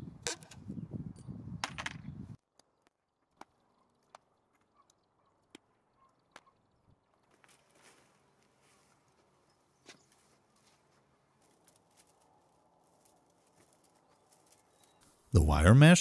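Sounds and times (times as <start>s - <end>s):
handling rustle: 10.0s - 15.2s.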